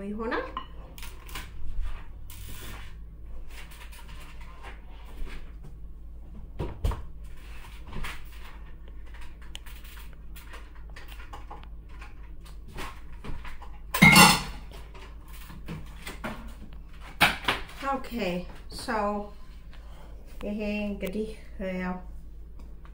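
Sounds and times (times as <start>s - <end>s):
dishes and utensils clinking: 14.0s - 14.7s.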